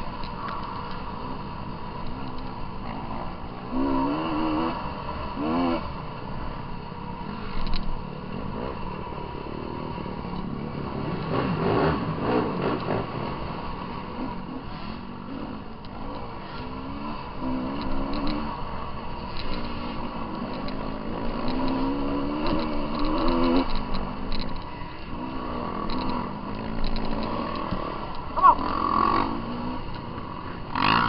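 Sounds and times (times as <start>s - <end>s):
dirt bike engine revving: 2.1s - 6.0s, 7.3s - 31.0s
bike rattling: 6.6s - 31.0s.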